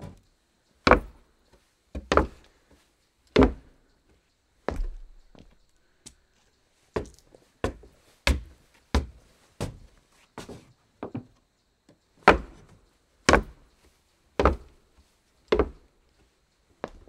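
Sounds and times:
footsteps on wooden floor: 3.4 - 3.7, 4.7 - 5.6, 14.4 - 14.8, 15.5 - 15.8.

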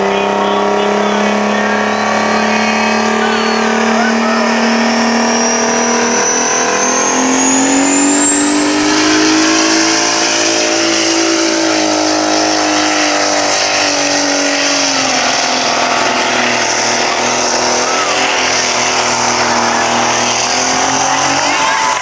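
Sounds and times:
truck engine revving high: 0.0 - 22.0
thin high whine: 1.7 - 22.0.

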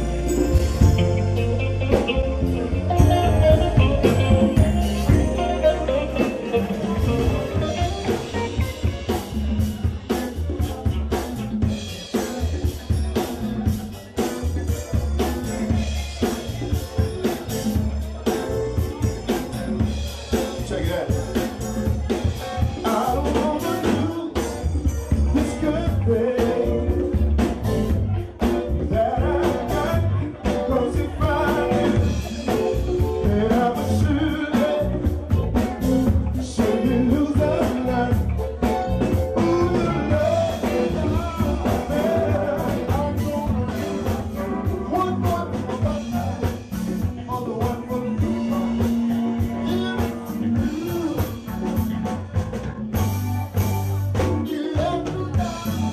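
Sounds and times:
live band playing: 0.0 - 55.9
man singing into a microphone: 22.0 - 52.0, 54.1 - 55.9.

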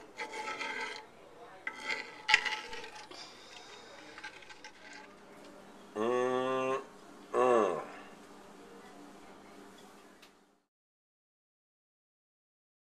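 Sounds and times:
metal spoon scraping skillet: 0.0 - 5.2
steady hum: 0.0 - 10.6.

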